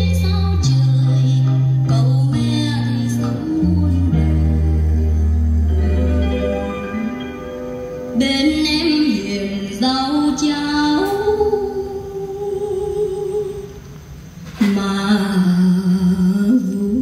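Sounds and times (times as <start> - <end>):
slow melody of long held notes: 0.0 - 17.0.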